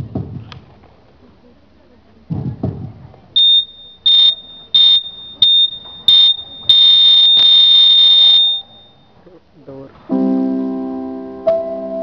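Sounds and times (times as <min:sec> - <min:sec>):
electronic buzzer beeping: 0:03.4 - 0:09.0.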